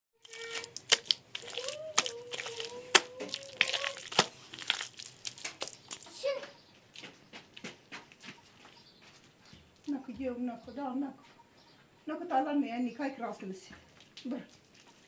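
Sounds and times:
wet plaster squelching: 0.2s - 10.0s
wet slaps: 0.3s - 6.1s.

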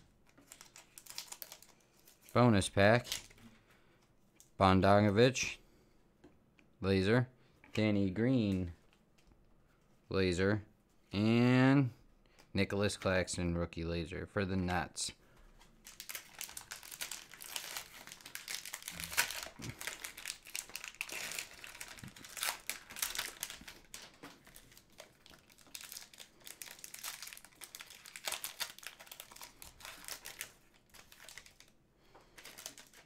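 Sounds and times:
foil wrapper crinkling: 0.3s - 3.4s, 15.8s - 33.0s.

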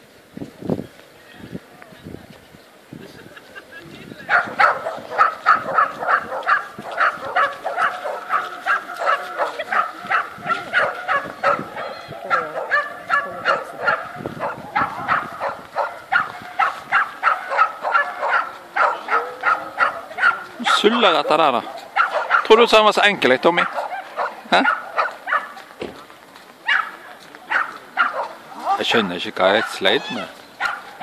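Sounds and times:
small dog barking: 4.3s - 22.6s, 23.6s - 25.6s, 26.6s - 31.0s.

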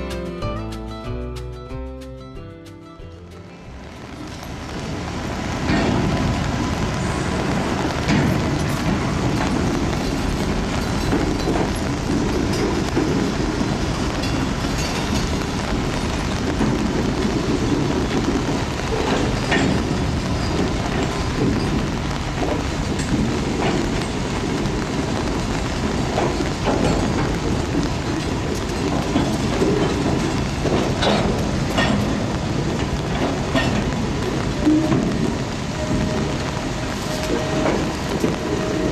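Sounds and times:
train wheels rumbling: 3.1s - 38.9s
sharp clicks and clanks: 8.0s - 35.3s.

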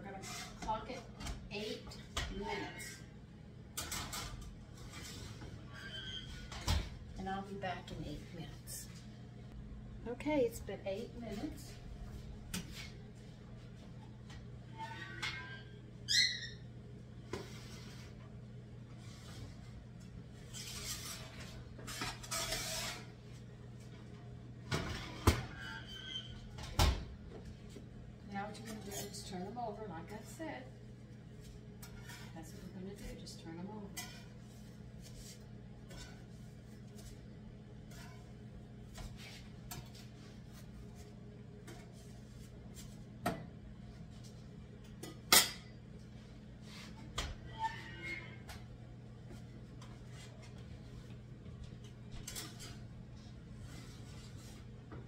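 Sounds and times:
spatula scraping a griddle: 0.1s - 0.7s, 20.5s - 23.2s, 31.8s - 37.2s, 37.8s - 39.9s
steady low hum: 6.4s - 14.8s
rustling and scraping: 20.4s - 23.4s.

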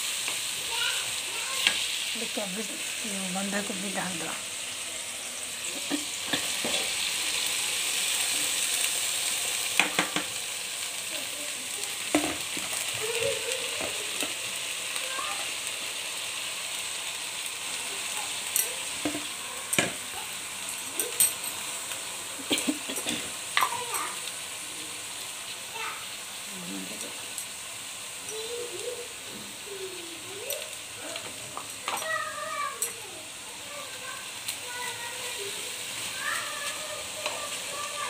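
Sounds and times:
oil sizzling in a wok: 0.0s - 38.0s.

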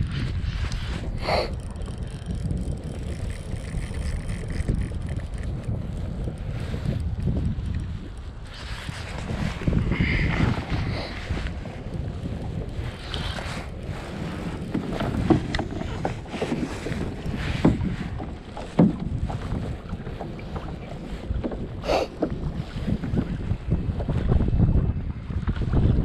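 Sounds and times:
wind buffeting microphone: 0.0s - 26.0s
gear knocking on kayak: 1.5s - 8.0s, 14.4s - 24.2s.

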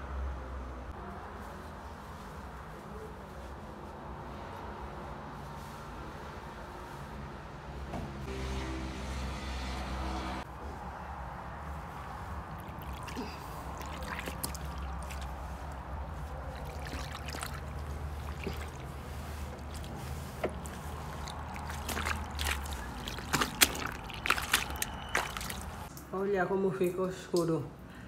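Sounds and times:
water sloshing in fabric: 11.8s - 25.9s
water splashing: 11.9s - 25.9s.

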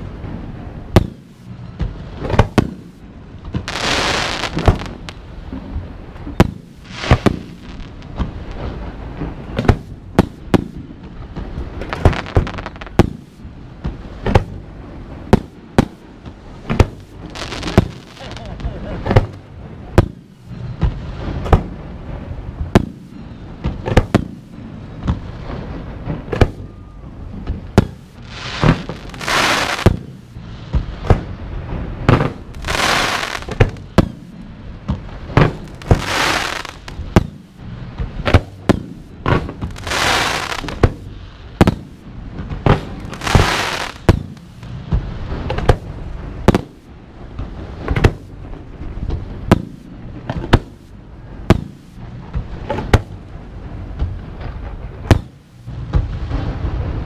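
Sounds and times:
fireworks booming: 0.0s - 57.0s
fireworks hissing: 3.6s - 5.2s, 6.4s - 8.9s, 11.8s - 13.2s, 16.8s - 19.4s, 27.8s - 31.0s, 32.4s - 34.1s, 35.2s - 37.4s, 39.6s - 41.7s, 43.0s - 45.7s.

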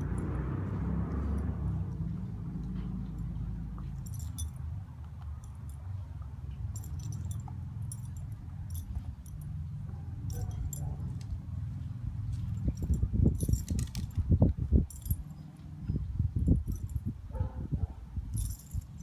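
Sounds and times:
steady low rumble: 0.0s - 19.0s
dog collar tags jingling: 2.7s - 11.3s, 12.3s - 17.6s, 18.3s - 19.0s.

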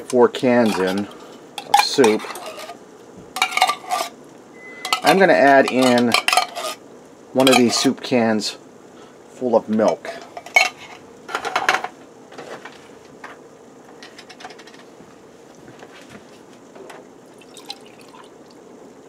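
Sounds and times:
milk pouring into a can: 17.3s - 18.6s.

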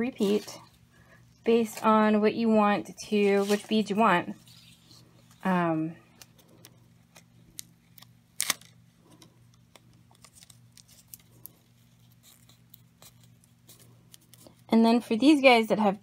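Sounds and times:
low electrical hum: 0.0s - 16.0s
paper rustling: 3.1s - 5.6s.

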